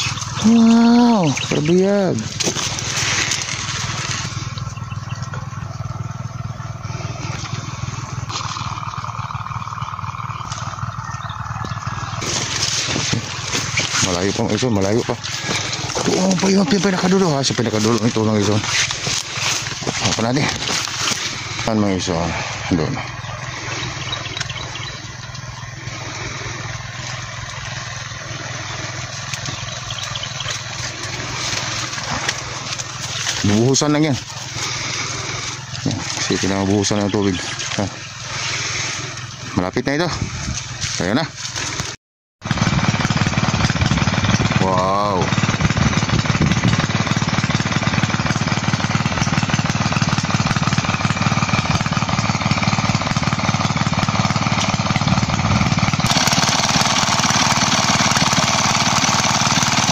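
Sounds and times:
water rushing: 0:00.0 - 0:04.7
higher steady hum: 0:00.0 - 0:59.9
small water pump engine running: 0:00.0 - 0:59.9.

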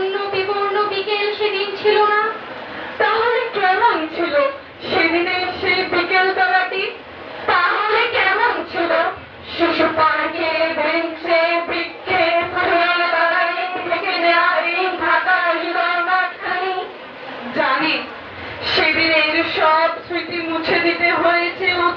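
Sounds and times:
girls reciting in chorus: 0:07.5 - 0:16.9.

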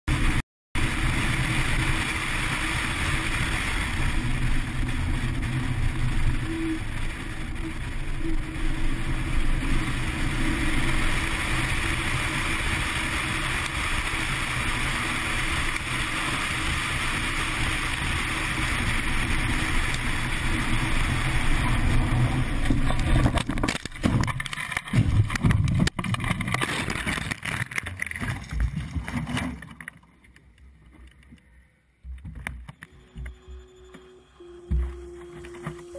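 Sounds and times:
wind and road noise: 0:00.1 - 0:35.9.

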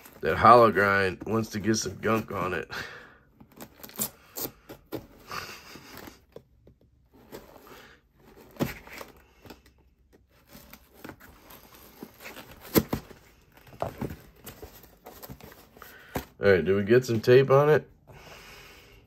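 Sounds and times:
cardboard rustling: 0:00.0 - 0:02.7, 0:03.3 - 0:17.7
knife tearing packing tape: 0:03.7 - 0:04.8.

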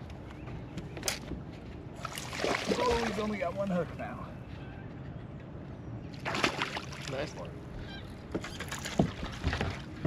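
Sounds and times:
water noise: 0:01.9 - 0:04.2, 0:06.1 - 0:10.0.

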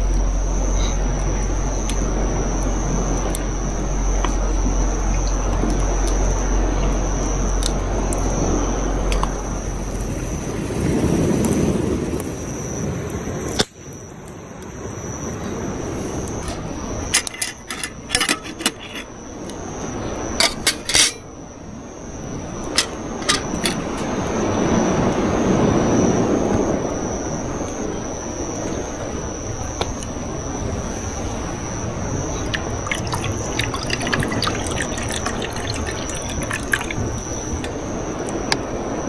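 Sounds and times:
steady rushing noise: 0:00.0 - 0:13.5
thin high steady tone: 0:00.0 - 0:39.0.

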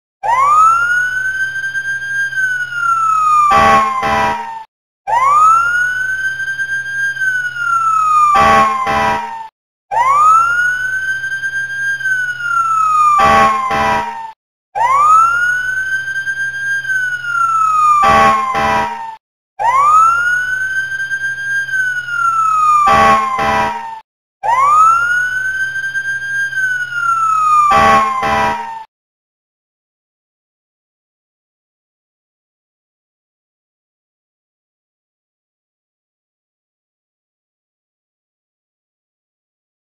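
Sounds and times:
fire engine siren wail: 0:00.2 - 0:28.9
short sharp siren blasts: 0:00.2 - 0:28.9.

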